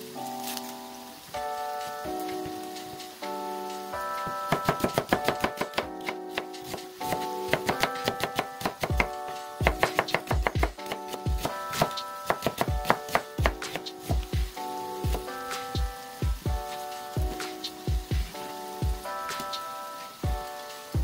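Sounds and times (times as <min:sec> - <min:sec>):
background music: 0:00.0 - 0:21.0
knife chopping on wooden board: 0:11.4 - 0:13.6.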